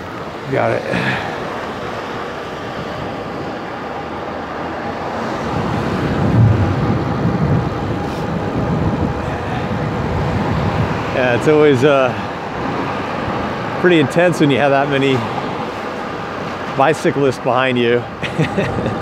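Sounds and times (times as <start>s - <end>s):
electric bike road noise: 0.0s - 19.0s
wind on microphone: 4.8s - 13.8s.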